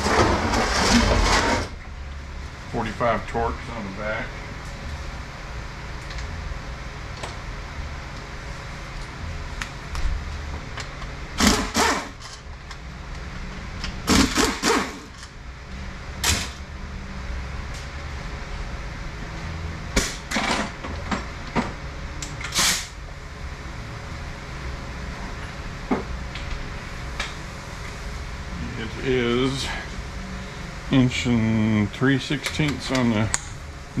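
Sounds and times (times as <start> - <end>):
steady low hum: 0.0 - 34.0
power tool bursts: 11.4 - 12.2, 14.1 - 15.1.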